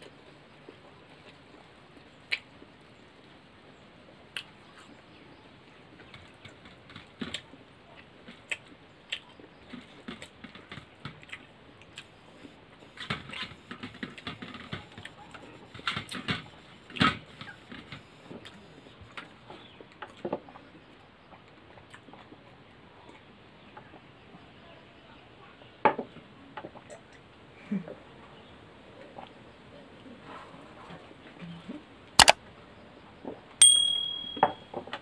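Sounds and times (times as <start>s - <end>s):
chewing and lip smacks: 2.3s - 2.6s, 4.3s - 4.9s, 7.3s - 10.4s, 11.1s - 19.2s, 21.8s - 22.4s.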